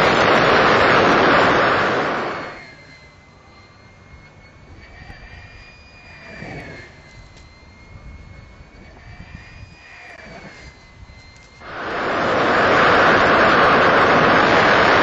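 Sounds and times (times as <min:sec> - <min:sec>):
air rushing over glider: 0:00.0 - 0:03.0, 0:08.4 - 0:15.0
thin wind whistle: 0:00.0 - 0:15.0.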